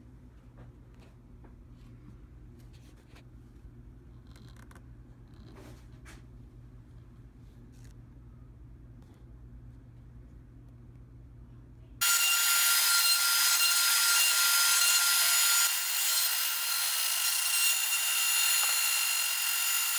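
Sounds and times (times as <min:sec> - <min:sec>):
faint low hum: 0:00.0 - 0:12.0
router whining cutting wood: 0:12.0 - 0:19.9.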